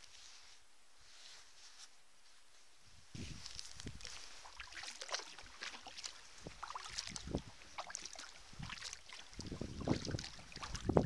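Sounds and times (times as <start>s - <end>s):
wind buffeting microphone: 3.0s - 4.2s, 6.4s - 7.6s, 8.4s - 11.0s
steady water hiss: 3.1s - 11.0s
paddle splashes and drips: 3.4s - 11.0s.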